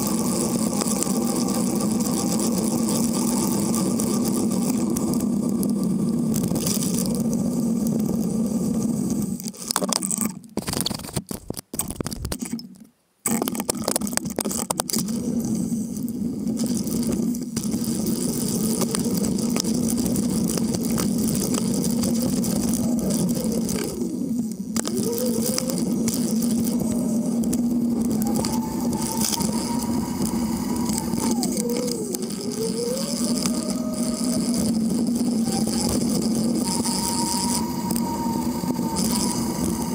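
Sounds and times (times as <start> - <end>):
wind noise: 13.8 - 39.9
road rumble: 15.3 - 39.9.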